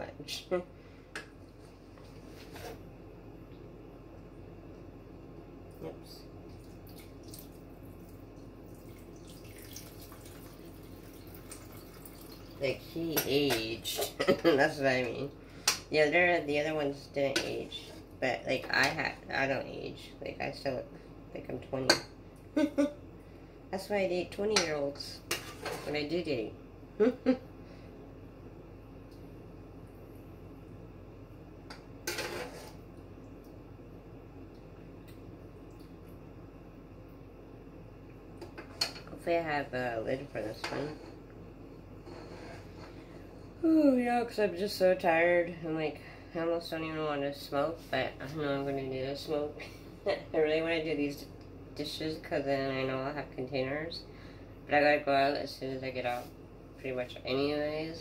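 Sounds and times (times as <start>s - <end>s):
low steady hum: 0.0s - 58.0s.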